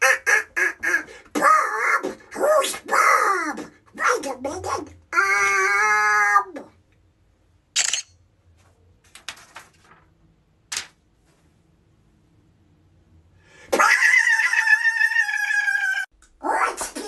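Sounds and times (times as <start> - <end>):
high-pitched drawn-out vocal cry: 5.1 - 6.7, 13.7 - 17.0
soft clicks and rustles: 8.5 - 11.6.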